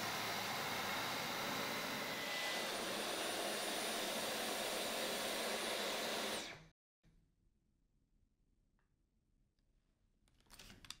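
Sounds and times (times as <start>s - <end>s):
vacuum cleaner running: 0.0s - 6.7s.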